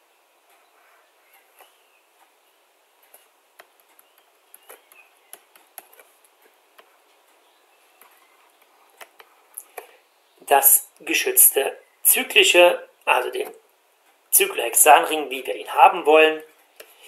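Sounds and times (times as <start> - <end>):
low hiss: 0.0 - 17.0
stylus tapping on drawing tablet: 3.1 - 6.9.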